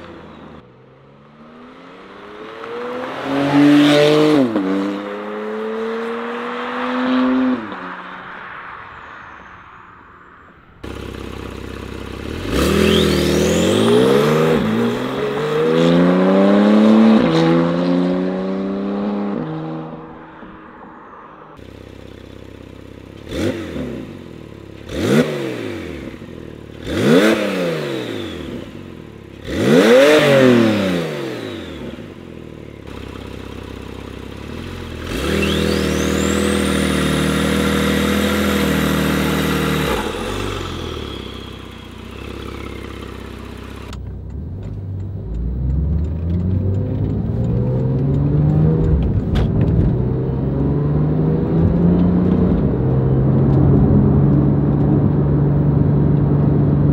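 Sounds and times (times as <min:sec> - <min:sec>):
car exhaust revving: 0:21.6 - 0:56.9.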